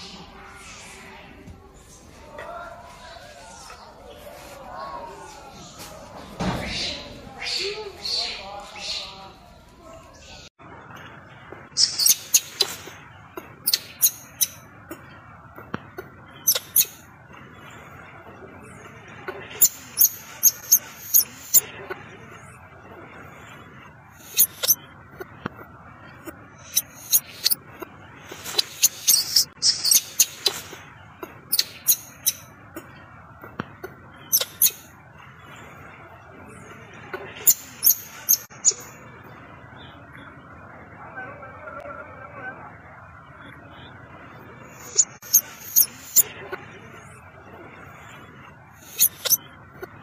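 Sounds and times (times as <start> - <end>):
baby monkey shrill squeaks: 11.8 - 12.8, 13.6 - 14.6, 16.5 - 17.0, 24.3 - 24.8, 28.5 - 30.6, 31.5 - 32.4, 34.3 - 34.8, 48.9 - 49.4.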